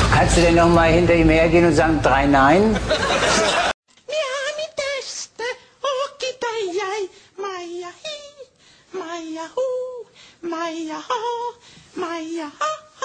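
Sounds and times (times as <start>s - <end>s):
man singing unaccompanied: 4.1s - 13.0s.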